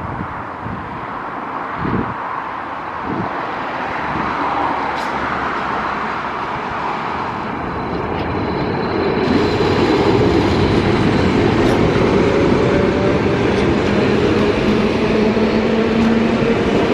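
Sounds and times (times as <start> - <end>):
train wheels rumbling: 4.0 - 16.9.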